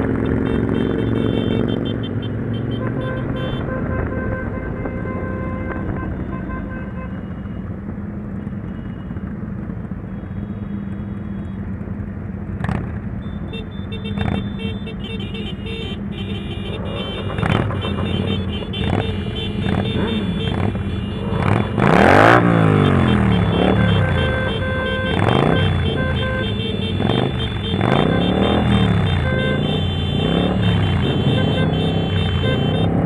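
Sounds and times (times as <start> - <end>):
motorcycle engines in traffic: 0.0 - 33.0
motorcycle revving hard: 16.8 - 33.0.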